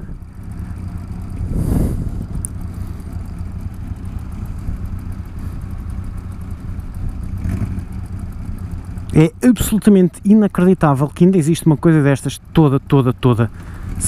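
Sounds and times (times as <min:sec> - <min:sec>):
rush of noise: 0:00.0 - 0:03.2
two-stroke motorbike engine idling: 0:00.0 - 0:14.0.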